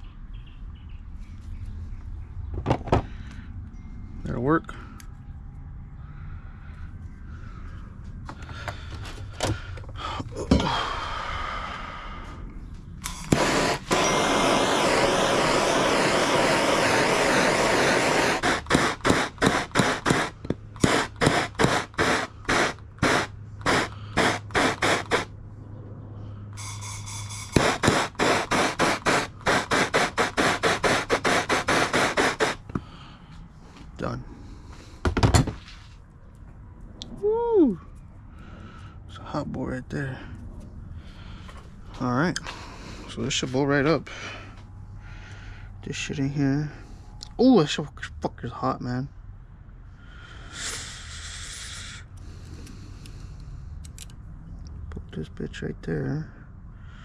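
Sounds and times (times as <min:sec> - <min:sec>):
gas torch hissing: 0:13.0 - 0:25.4, 0:26.6 - 0:32.8, 0:50.4 - 0:53.2.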